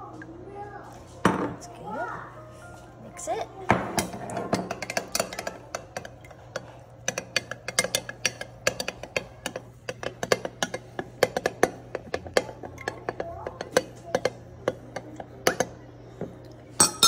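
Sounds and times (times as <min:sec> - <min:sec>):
metal spoon clinking in glass jar: 0:16.8 - 0:17.0.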